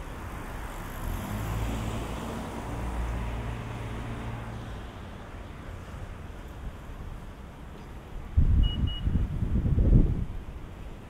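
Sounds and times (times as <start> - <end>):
street noise: 0.0 - 11.0
car driving past: 0.8 - 4.7.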